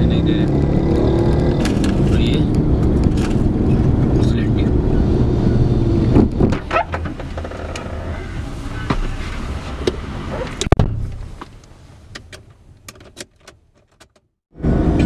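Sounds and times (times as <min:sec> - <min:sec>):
car door shutting: 0:06.1 - 0:11.5.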